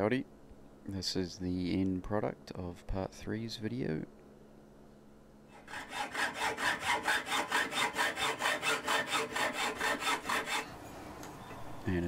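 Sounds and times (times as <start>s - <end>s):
hacksaw cutting metal tubing: 5.5s - 10.7s.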